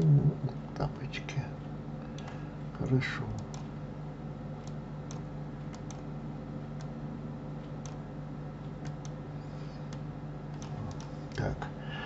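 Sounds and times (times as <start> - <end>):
steady low hum: 0.0 - 12.0
mouse buttons clicking: 4.6 - 6.0.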